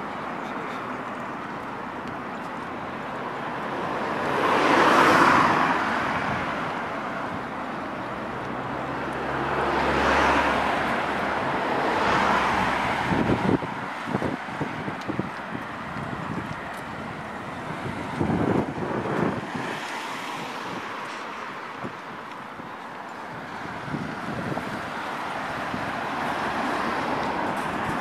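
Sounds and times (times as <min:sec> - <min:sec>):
cars passing: 0:00.0 - 0:28.0
wind buffeting microphone: 0:03.8 - 0:07.6, 0:10.7 - 0:28.0.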